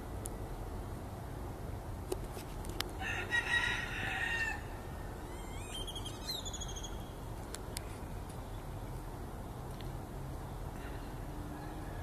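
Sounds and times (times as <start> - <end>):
rooster crowing: 3.0 - 4.8, 11.5 - 12.0.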